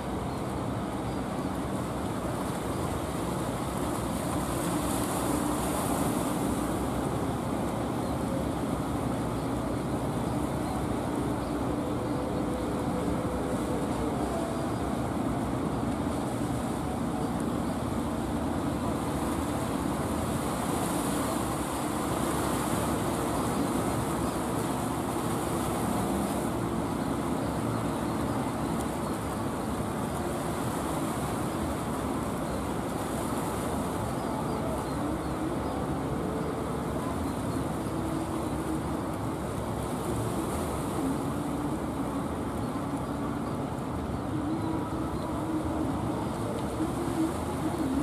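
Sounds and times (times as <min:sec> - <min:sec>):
boat engines droning: 0:00.0 - 0:48.0
bow waves washing: 0:00.0 - 0:48.0.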